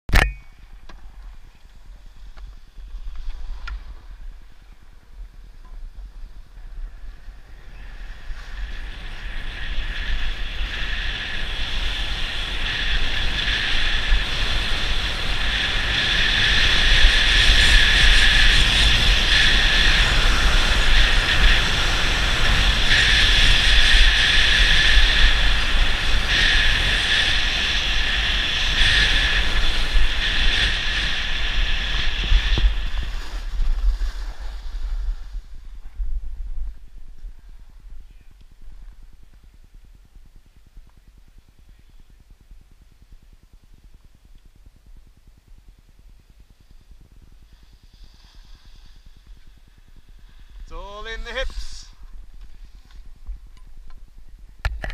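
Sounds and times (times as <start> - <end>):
wind buffeting microphone: 1.1 - 47.9
skis scraping over hard snow: 1.8 - 37.9, 46.7 - 53.3.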